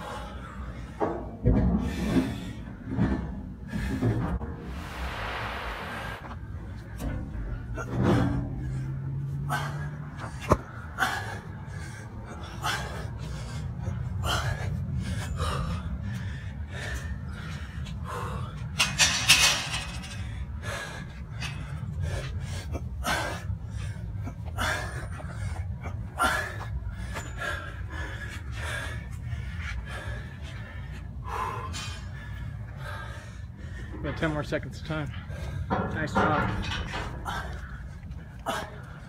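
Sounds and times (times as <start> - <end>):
low rumble: 0.5 - 34.1.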